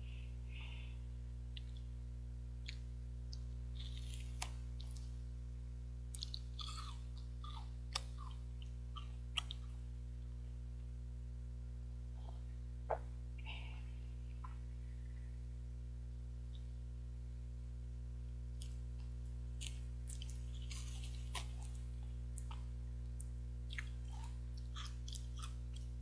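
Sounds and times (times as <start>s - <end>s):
steady low hum: 0.0s - 26.0s
person chewing: 2.6s - 5.2s, 6.1s - 9.8s, 18.6s - 26.0s.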